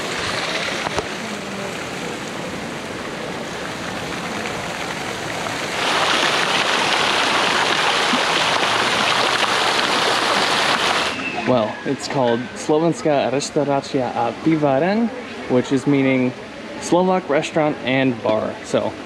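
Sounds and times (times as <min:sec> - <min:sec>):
fountain water splashing into basin: 0:00.0 - 0:11.8.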